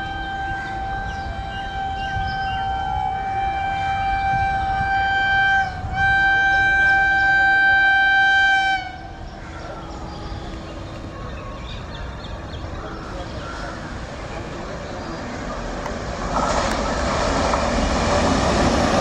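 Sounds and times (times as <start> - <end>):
locomotive horn blast: 0.0 - 9.4
train running noise: 0.0 - 19.0.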